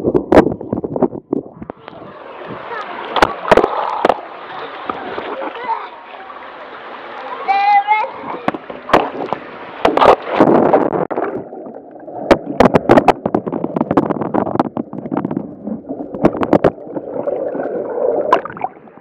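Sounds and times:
water rushing through slide tube: 0:01.4 - 0:19.0
underwater gurgling and bubbling: 0:08.8 - 0:19.0.

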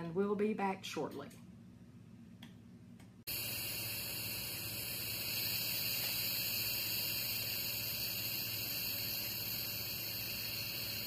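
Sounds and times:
steady hiss: 0:03.3 - 0:11.0.

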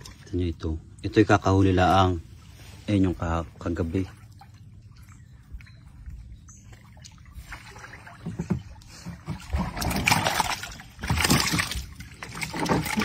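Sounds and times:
paddle splashing in water: 0:06.6 - 0:13.0.

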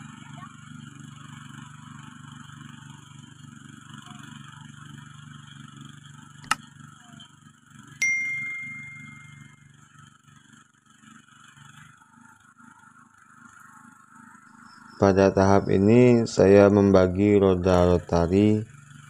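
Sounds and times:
distant cultivator engine running: 0:00.0 - 0:19.0
bell ding: 0:08.0 - 0:09.7.

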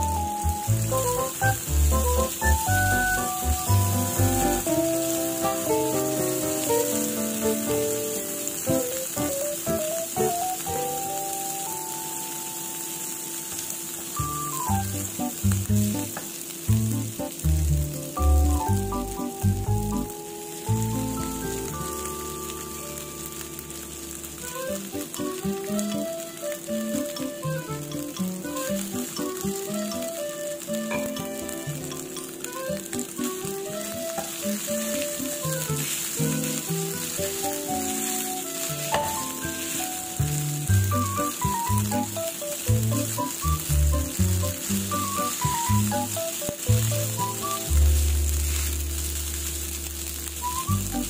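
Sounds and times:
background music simple melody: 0:00.0 - 0:49.6, 0:50.2 - 0:51.0
food sizzling in a pan: 0:00.0 - 0:51.0
spatula stirring in a pan: 0:31.2 - 0:49.4.

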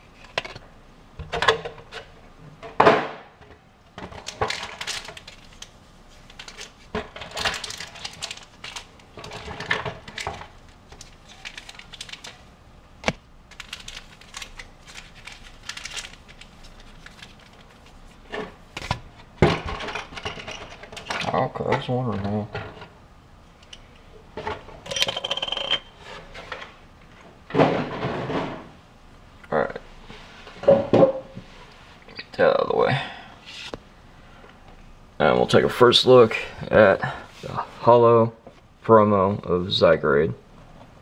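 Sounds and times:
packaging rustling: 0:04.2 - 0:18.2.

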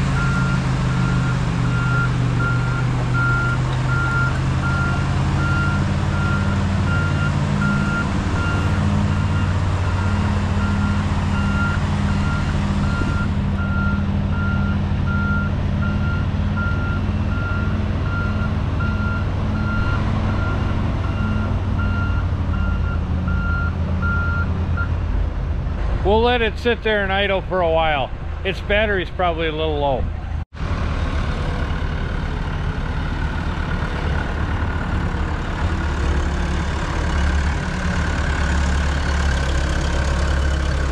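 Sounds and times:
tracked vehicle engine running: 0:00.0 - 0:40.9
backup alarm beeping: 0:00.2 - 0:24.9.

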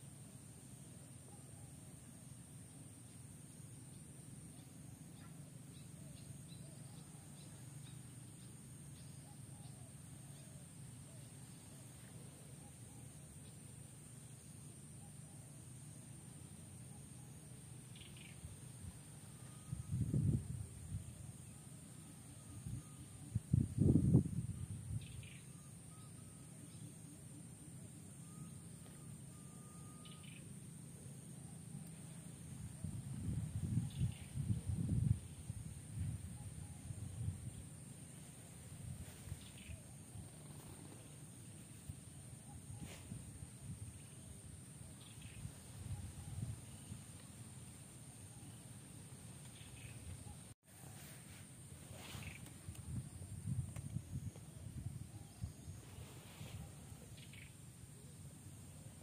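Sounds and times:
steady high-pitched hiss: 0:00.0 - 0:59.0
faint high chirps: 0:00.7 - 0:59.0
distant bird chirps: 0:16.4 - 0:20.2, 0:24.6 - 0:32.6, 0:43.8 - 0:50.6, 0:52.0 - 0:52.7, 0:56.8 - 0:58.3.

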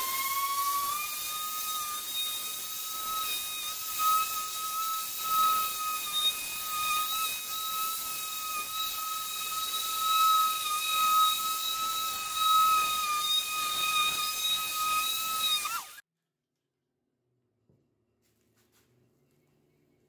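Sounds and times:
electric polisher whining: 0:00.0 - 0:16.0.

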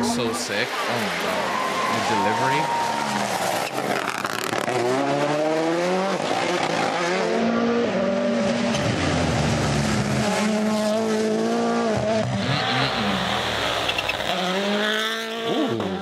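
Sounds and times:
rally car engines at full throttle: 0:00.0 - 0:16.0
tyre squeal: 0:12.4 - 0:14.8.

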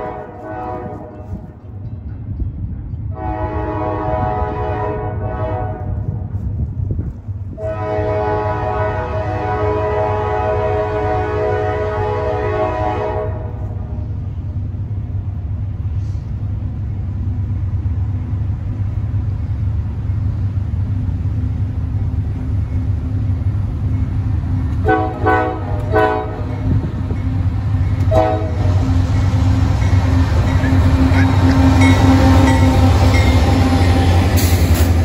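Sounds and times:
train horn blasts: 0:00.0 - 0:01.6, 0:03.1 - 0:06.4, 0:07.5 - 0:14.0, 0:24.8 - 0:27.1, 0:27.8 - 0:34.7
diesel locomotive engine rumble: 0:00.0 - 0:35.0.

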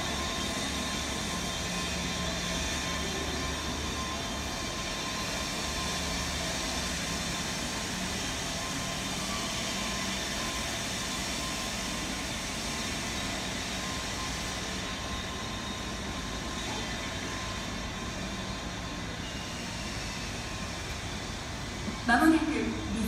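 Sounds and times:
faint hum: 0:21.9 - 0:23.0.

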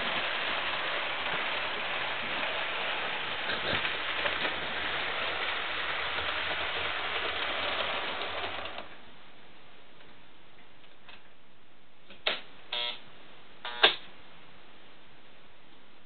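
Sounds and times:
model train wheels on rail: 0:00.0 - 0:09.0.

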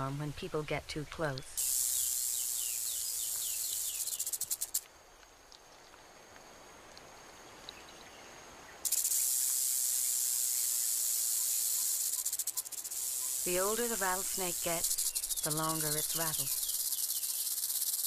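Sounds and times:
rattlesnake rattle buzzing: 0:01.6 - 0:04.9, 0:08.8 - 0:18.0.

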